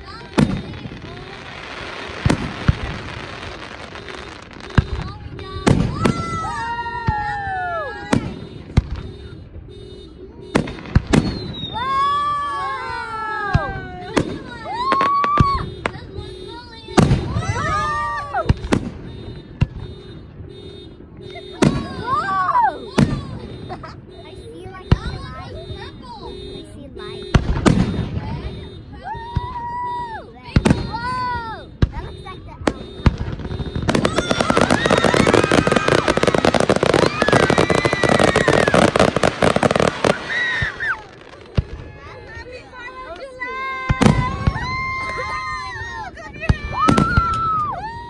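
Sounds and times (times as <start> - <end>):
crackling fireworks pops: 0.0 - 48.0
wavering wail of tones: 34.0 - 41.4.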